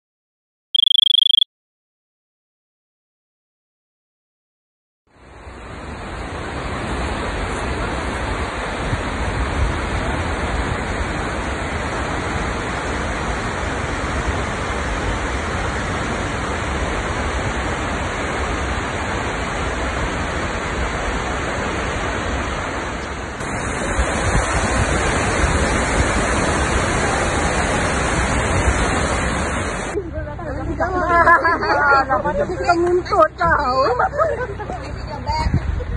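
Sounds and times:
waterfall rushing: 5.4s - 30.0s.

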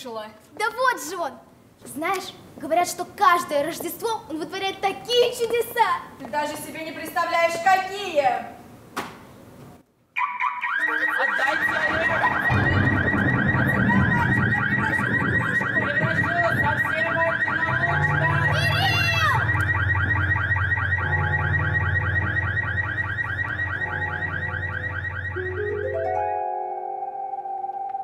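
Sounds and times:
warbling electronic alarm: 10.2s - 28.0s
bright falling glide tone: 23.9s - 28.0s.

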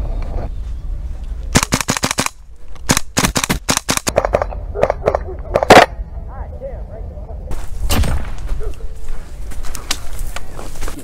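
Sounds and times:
airsoft guns firing: 1.5s - 5.9s.

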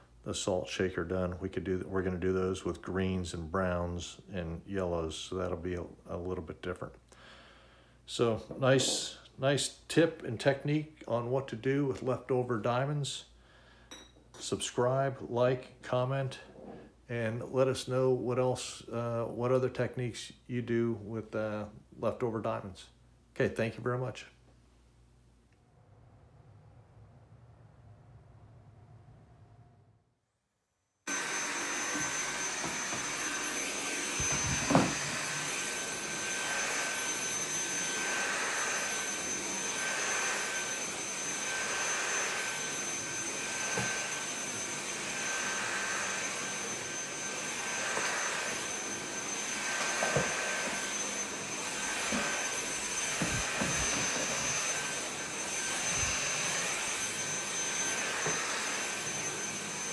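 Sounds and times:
stick vacuum cleaner whining: 31.1s - 59.9s.

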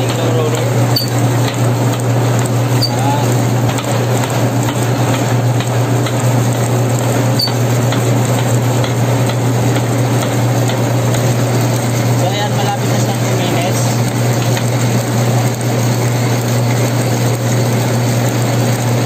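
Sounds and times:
dough roller machine humming: 0.0s - 19.0s.

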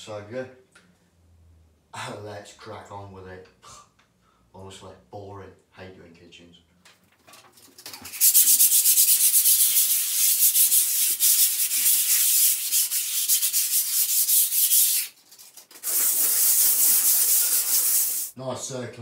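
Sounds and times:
sandpaper scratching on a wall: 8.1s - 18.4s.

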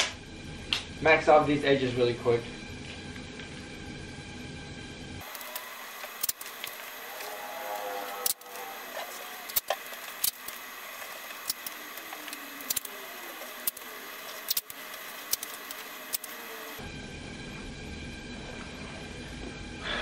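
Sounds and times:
dull hum: 0.0s - 20.0s
masking tape clicks and crackles: 5.2s - 16.8s.

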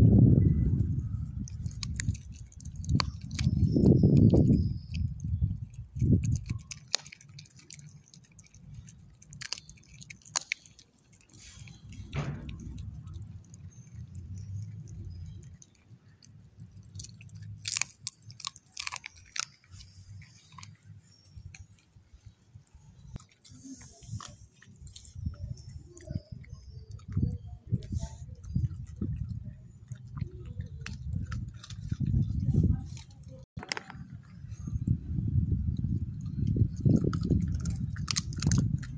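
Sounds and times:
dog chewing wetly: 1.2s - 22.3s, 22.9s - 35.0s, 35.8s - 38.9s
bone crunching: 1.4s - 21.9s, 36.2s - 38.9s.

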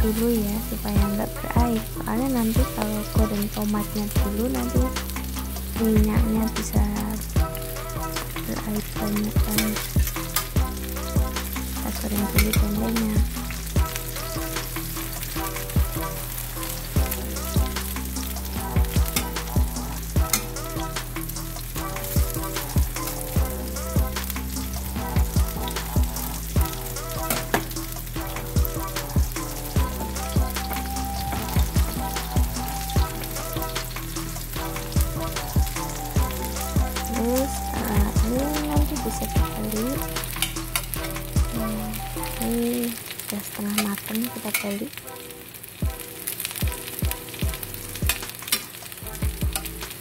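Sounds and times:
background music with beat: 0.0s - 43.2s, 44.3s - 50.0s
food sizzling in hot oil: 0.0s - 50.0s.

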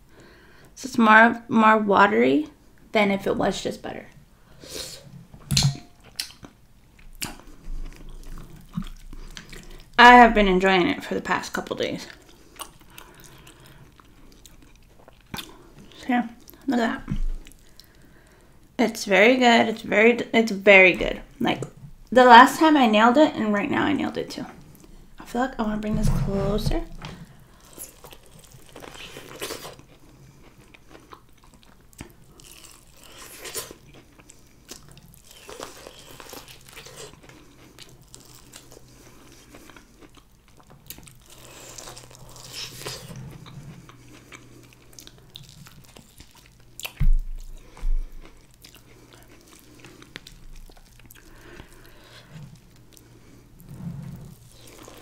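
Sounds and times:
chewing corn on the cob: 6.1s - 9.9s, 12.1s - 16.6s, 27.5s - 53.4s.

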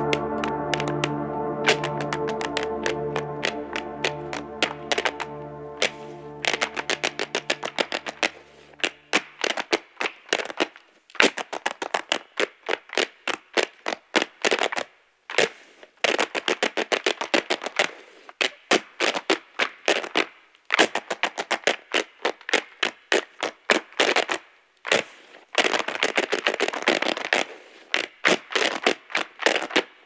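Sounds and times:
low held music notes: 0.0s - 9.1s.

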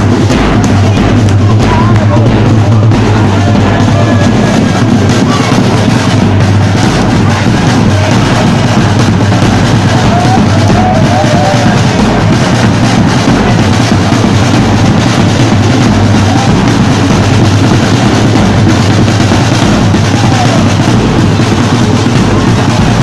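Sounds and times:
drum band playing: 0.0s - 23.0s
marching drum beaten with sticks: 0.0s - 23.0s.

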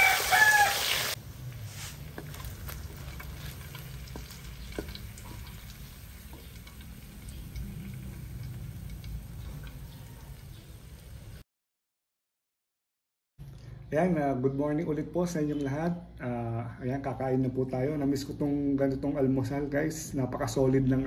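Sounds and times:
meat sizzling in oil: 0.0s - 11.4s.

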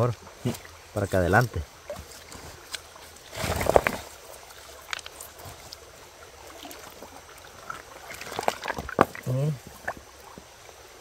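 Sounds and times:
shallow stream running: 0.0s - 11.0s
stones knocking in water: 3.5s - 4.1s, 8.0s - 10.5s.

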